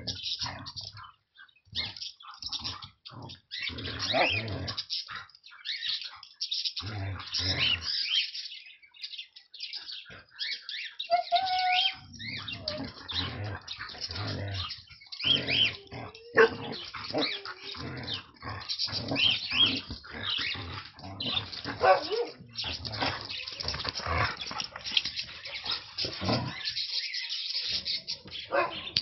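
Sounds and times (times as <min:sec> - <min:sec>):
sled dogs crying: 0:11.1 - 0:13.2, 0:15.3 - 0:18.4.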